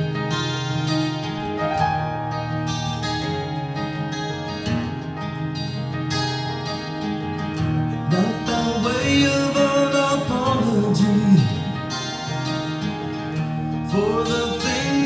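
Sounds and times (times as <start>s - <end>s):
acoustic guitar: 0.0s - 15.0s
man singing: 8.1s - 12.0s, 13.8s - 15.0s.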